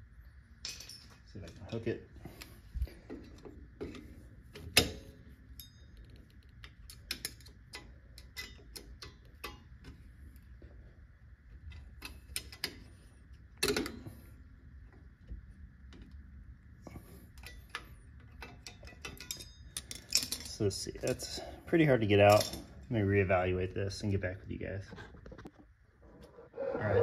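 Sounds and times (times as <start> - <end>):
metallic clicks of pliers and hook tool: 5.6 - 10.0.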